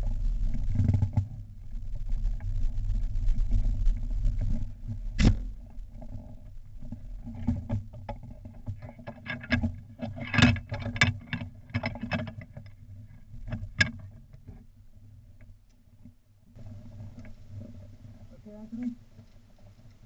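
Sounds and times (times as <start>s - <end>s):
low rumble: 0.0s - 7.9s.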